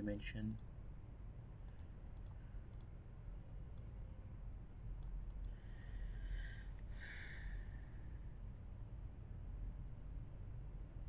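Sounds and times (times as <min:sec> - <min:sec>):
steady low hum: 0:00.0 - 0:11.0
computer mouse clicking: 0:01.7 - 0:02.9, 0:05.0 - 0:05.6.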